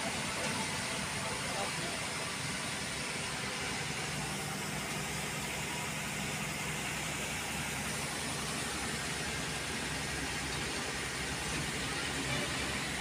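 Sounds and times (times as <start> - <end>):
bus engine and road hum: 0.0 - 13.0.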